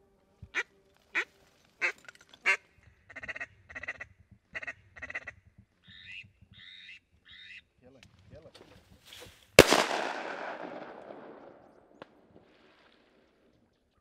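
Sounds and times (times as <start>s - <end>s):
duck quacking: 0.6s - 7.7s.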